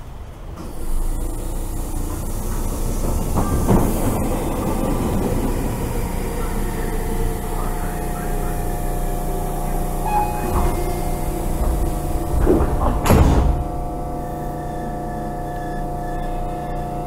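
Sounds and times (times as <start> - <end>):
electric train idling hum: 0.0 - 17.0
steady tones: 3.9 - 17.0.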